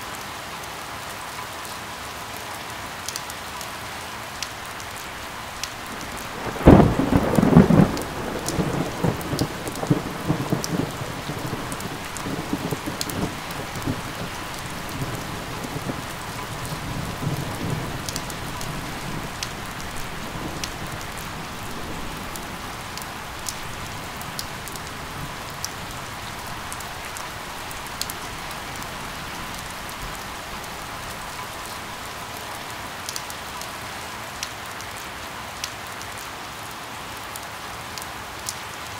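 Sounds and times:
steady rain: 0.0s - 38.9s
thunder rumbling: 5.3s - 32.7s.

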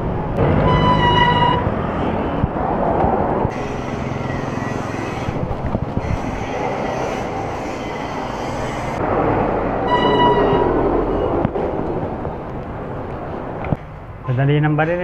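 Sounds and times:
road and wind noise: 0.0s - 15.0s
short high beep: 0.6s - 1.7s, 9.9s - 11.3s.

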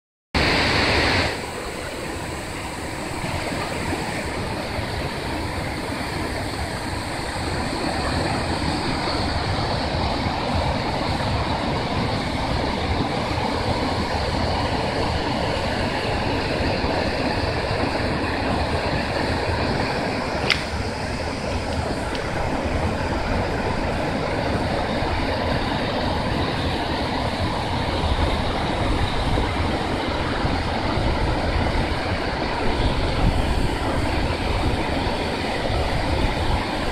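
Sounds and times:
river rapids rushing: 0.4s - 36.9s
sharp click: 20.4s - 20.8s.

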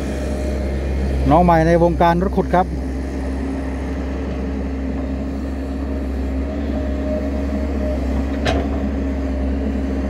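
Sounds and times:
excavator diesel engine running: 0.0s - 10.0s
excavator metal clank: 8.2s - 9.0s.

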